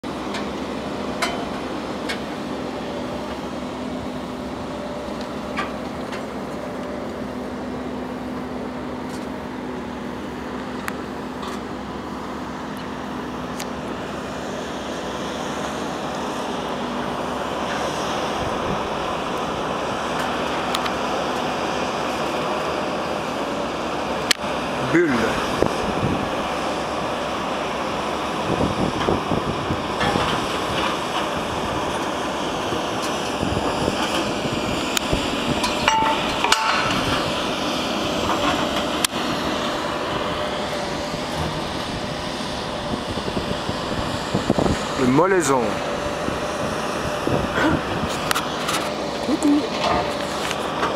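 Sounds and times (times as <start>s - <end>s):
wind rushing on microphone: 18.1s - 20.0s, 25.1s - 26.6s, 28.4s - 37.6s, 40.1s - 48.6s.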